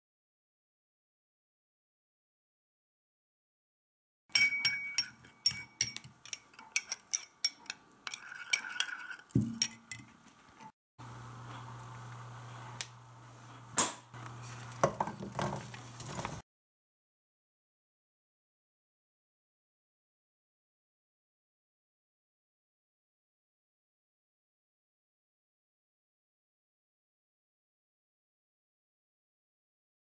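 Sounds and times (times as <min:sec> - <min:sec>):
metal spoon clinking on ceramic bowl: 0:04.3 - 0:10.7
wooden spatula scraping vegetables: 0:14.3 - 0:16.4.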